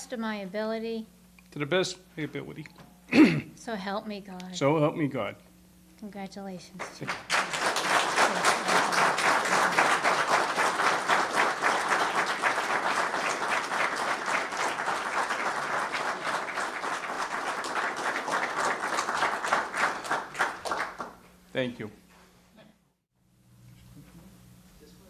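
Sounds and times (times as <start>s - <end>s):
audience applauding: 6.8s - 21.2s.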